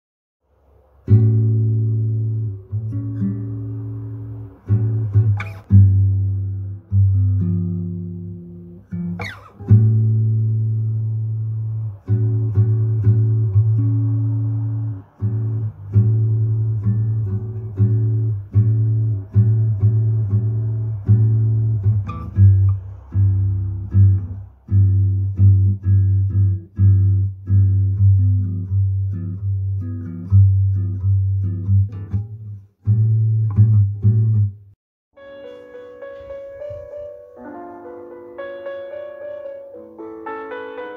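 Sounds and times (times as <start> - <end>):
plucked string notes: 1.0 - 34.6
steady low bass: 9.7 - 34.7.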